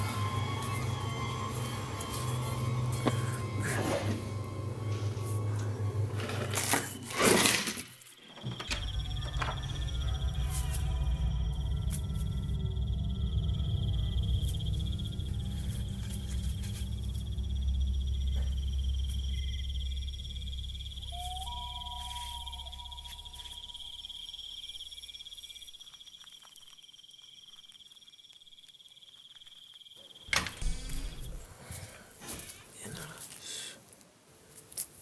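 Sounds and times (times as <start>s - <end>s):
low drone: 0.0s - 7.2s, 8.4s - 25.4s
crickets chirring: 0.0s - 33.7s.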